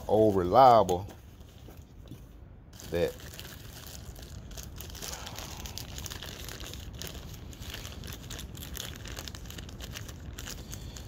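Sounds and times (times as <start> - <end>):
plastic bag crinkling: 2.7 - 11.0.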